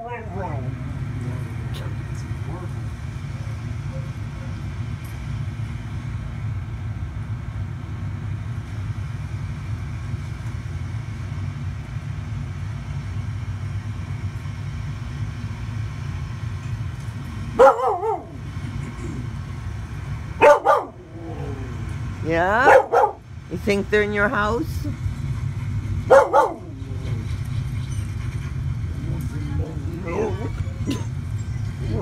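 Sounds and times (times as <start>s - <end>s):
dog barking: 17.6s - 18.4s, 20.4s - 21.0s, 22.6s - 23.2s, 26.1s - 26.8s.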